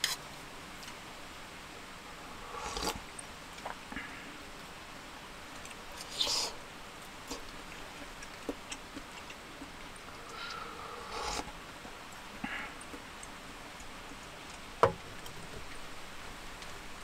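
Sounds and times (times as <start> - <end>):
person slurping hot food: 2.1 - 3.1, 6.0 - 6.6, 10.1 - 11.6.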